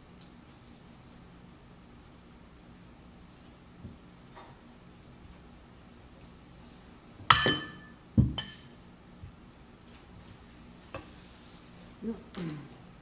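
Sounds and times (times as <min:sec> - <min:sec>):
glass clinking against glass: 0:07.3 - 0:08.6.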